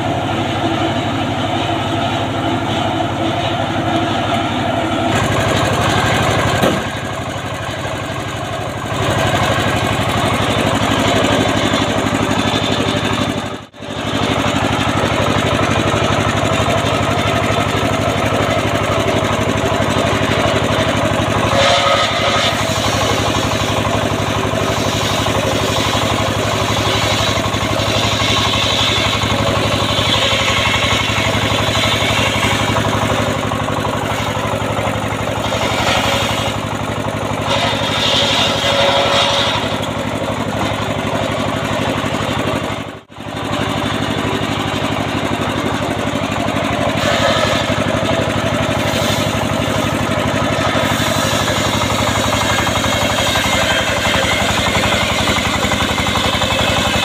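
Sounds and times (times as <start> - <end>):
circular saw ripping log: 20.7 - 33.3, 35.0 - 36.7, 37.4 - 40.0, 46.9 - 47.9.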